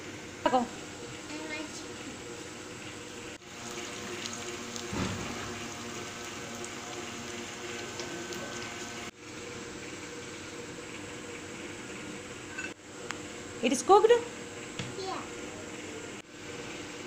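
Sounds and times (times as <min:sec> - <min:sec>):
egg sizzling in oil: 0:00.7 - 0:13.4.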